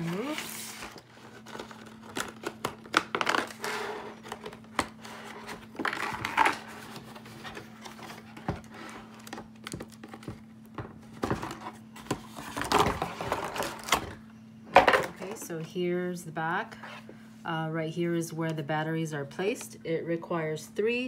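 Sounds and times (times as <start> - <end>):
cardboard rustling: 0.0 - 14.2.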